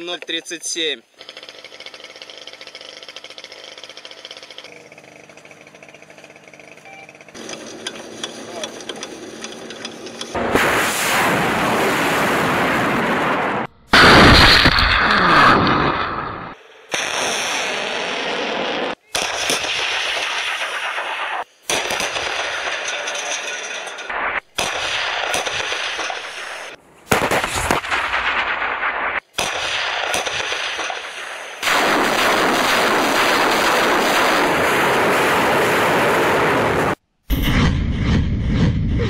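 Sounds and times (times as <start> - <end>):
rocket salvo roar: 10.3 - 19.0, 31.6 - 39.0
howitzer blast: 10.4 - 17.7, 23.9 - 39.0.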